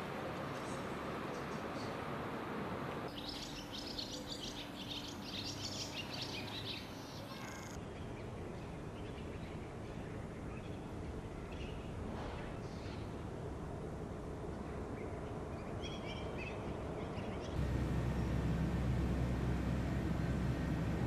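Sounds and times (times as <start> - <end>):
outdoor background noise: 0.0 - 21.0
small birds chirping: 3.1 - 12.0, 14.6 - 21.0.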